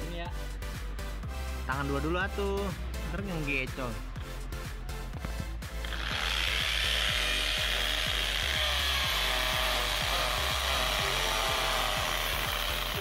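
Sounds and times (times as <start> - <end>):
background music with beat: 0.0 - 13.0
power drill boring a hole: 5.8 - 13.0.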